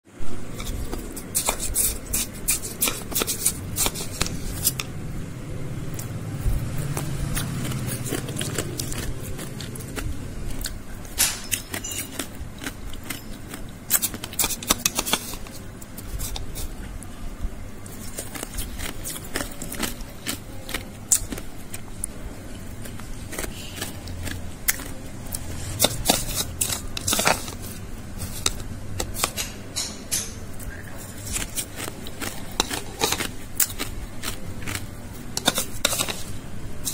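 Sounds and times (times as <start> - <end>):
spoon crunching through crushed ice: 0.5 - 4.8, 6.8 - 10.8, 11.5 - 16.7, 17.9 - 21.9, 22.8 - 29.3, 31.0 - 36.9.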